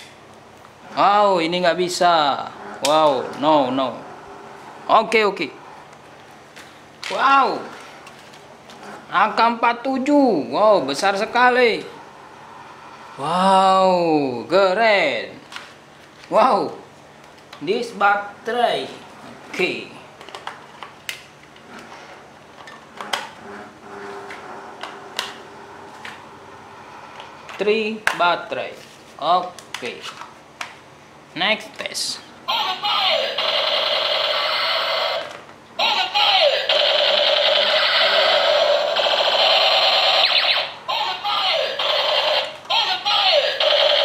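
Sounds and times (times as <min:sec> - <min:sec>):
toy gun electronic rapid-fire sound: 0:32.9 - 0:44.0.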